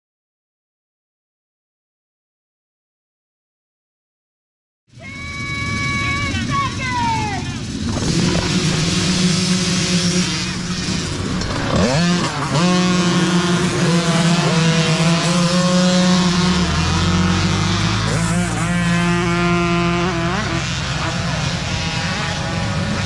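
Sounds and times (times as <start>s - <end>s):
mini dirt bike engines revving: 4.9s - 23.0s.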